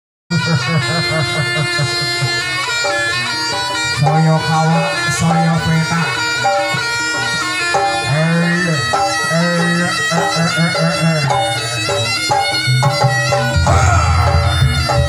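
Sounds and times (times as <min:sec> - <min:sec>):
shawm playing a melody: 0:00.3 - 0:15.0
accompanying ensemble: 0:13.6 - 0:15.0.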